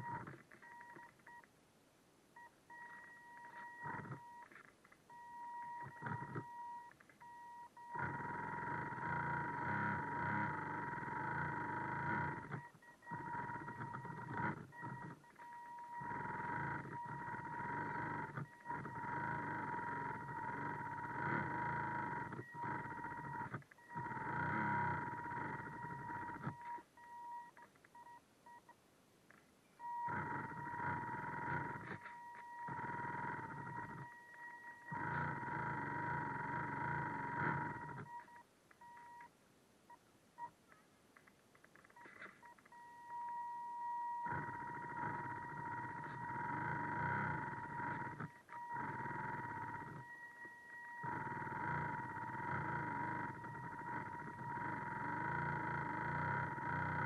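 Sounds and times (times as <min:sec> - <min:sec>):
small electric motor whining: 0:05.7 - 0:06.5, 0:07.9 - 0:26.8, 0:29.9 - 0:38.3, 0:44.2 - 0:57.0.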